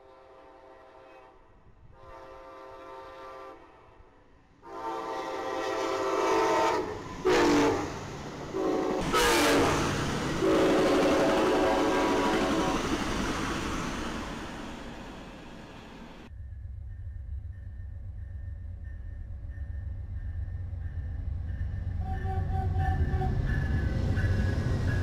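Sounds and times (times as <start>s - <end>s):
locomotive air horn blasts: 0.0s - 3.8s, 4.6s - 13.0s, 22.0s - 23.8s
train running by: 0.0s - 25.0s.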